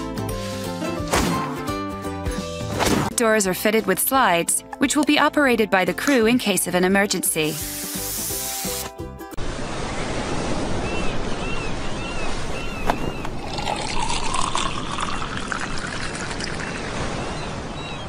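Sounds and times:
background music: 0.0 - 9.4
surf noise: 9.4 - 12.6
liquid pouring into bottle: 13.4 - 17.0.

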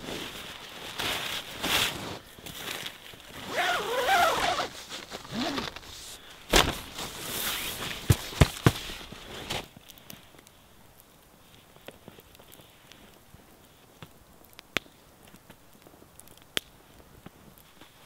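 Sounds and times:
fabric and gear rustling: 0.0 - 9.7
campfire crackling: 0.0 - 18.0.

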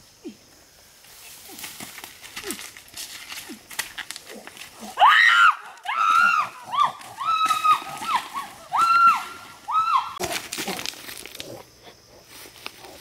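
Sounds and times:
footsteps on loose stones: 1.5 - 5.0, 5.7 - 11.6.

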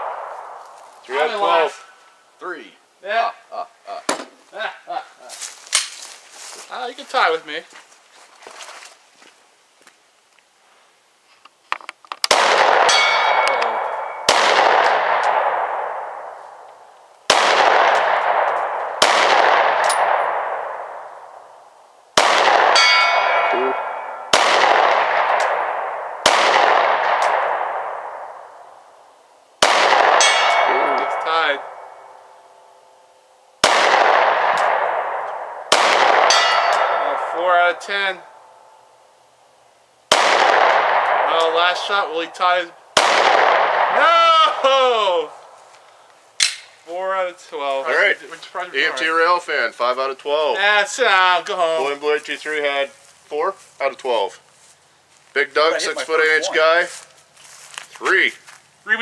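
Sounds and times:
steel target ringing: 12.8 - 14.5, 22.6 - 24.5, 30.0 - 33.2, 35.7 - 38.9
handgun shots with echo: 33.6 - 37.2, 46.4 - 46.7.

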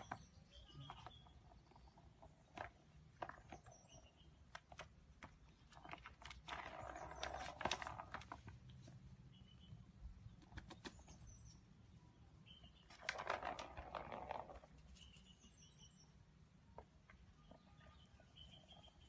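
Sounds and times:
birds chirping faintly: 0.0 - 19.0.

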